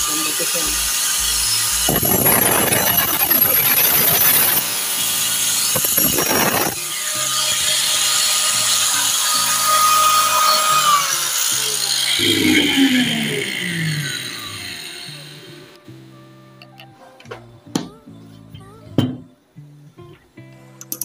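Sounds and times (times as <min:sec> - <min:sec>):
angle grinder grinding concrete: 0:00.0 - 0:15.8
grinder motor whine: 0:00.0 - 0:15.8.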